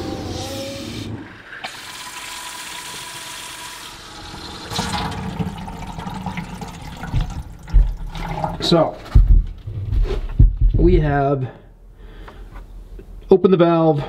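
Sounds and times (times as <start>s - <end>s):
water running from faucet: 1.5s - 8.7s.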